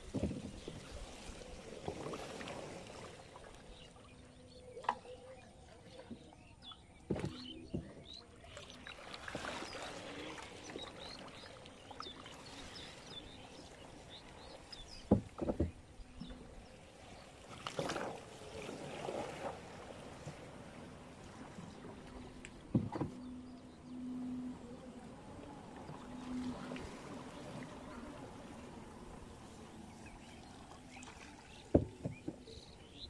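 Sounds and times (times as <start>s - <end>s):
sharp knocks on boat: 0.0s - 0.8s, 7.0s - 8.2s, 14.7s - 16.4s, 22.5s - 23.4s, 31.5s - 33.0s
water and plants brushing hull: 0.0s - 33.0s.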